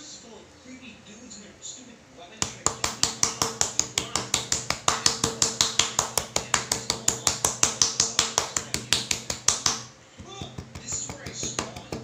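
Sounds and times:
knife chopping on wooden board: 2.4 - 12.0.

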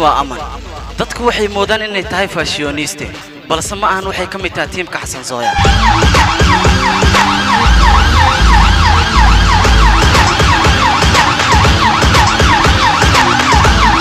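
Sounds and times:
yelping siren: 5.5 - 14.0
trailer soundtrack bass hits: 5.6 - 14.0.

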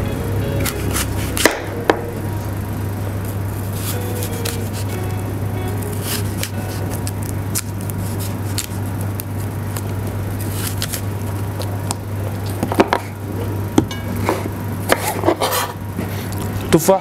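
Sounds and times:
low hum: 0.0 - 16.7
knife slicing apple: 0.6 - 2.1, 6.0 - 13.1, 14.9 - 15.8.

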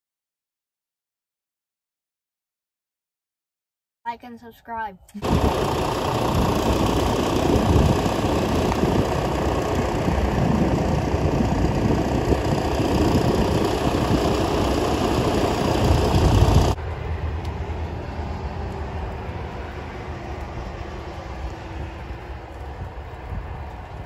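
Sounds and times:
strong wind buffeting microphone: 5.2 - 24.0.

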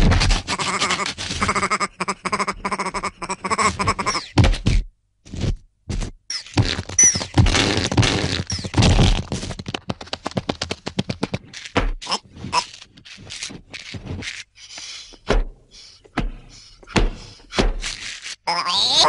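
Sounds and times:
high falling squeaks: 6.3 - 7.4.

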